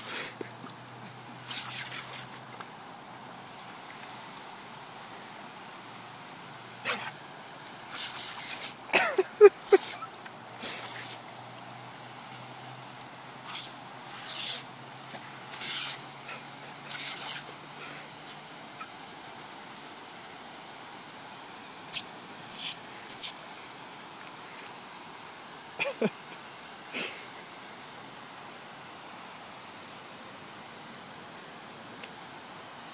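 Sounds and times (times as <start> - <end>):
water splashing: 0.0 - 2.7, 6.7 - 11.5, 12.7 - 19.0
lawn sprinkler spraying: 0.0 - 32.9.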